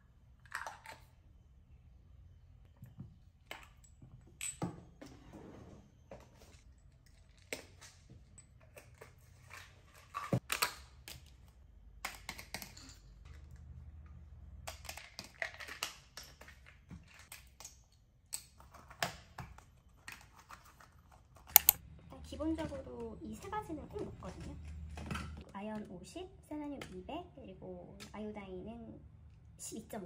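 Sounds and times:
capsules dropping into plastic cups: 10.3 - 13.6, 14.5 - 18.7
plastic caps and lids handled: 14.6 - 21.8.

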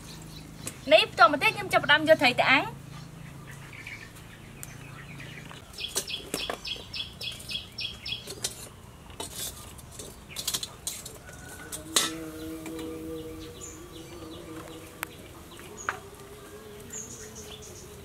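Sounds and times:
bird chirping: 0.0 - 10.8, 12.2 - 18.0
wire grill rack clattering: 8.2 - 12.2
metal tongs clinking on charcoal: 8.2 - 12.9.

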